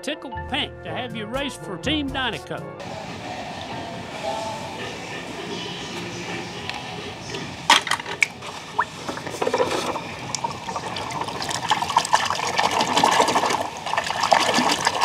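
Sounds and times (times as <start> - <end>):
hand splashing in muddy water: 7.8 - 15.0.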